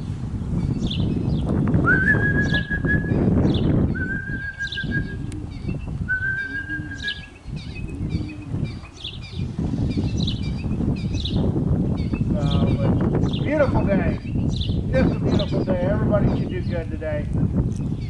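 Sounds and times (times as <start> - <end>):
small birds chirping: 0.6 - 1.7, 2.4 - 18.0
long whistled notes: 1.9 - 3.2, 3.9 - 5.3, 6.1 - 7.3.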